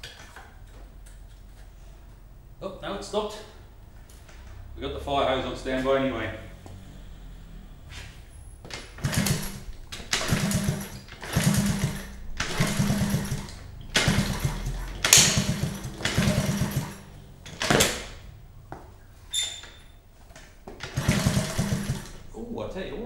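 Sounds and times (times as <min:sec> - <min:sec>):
minibike engine being kick-started: 0:05.7 - 0:18.5, 0:19.2 - 0:23.0.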